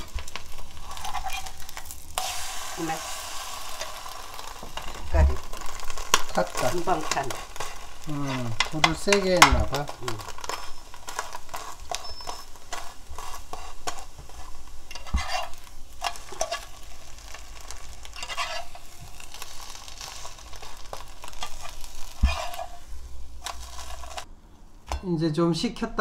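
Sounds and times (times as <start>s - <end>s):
metal spatula scraping pan: 0.0s - 24.2s
egg sizzling in frying pan: 0.0s - 25.0s
spatula tapping pan: 8.6s - 16.6s.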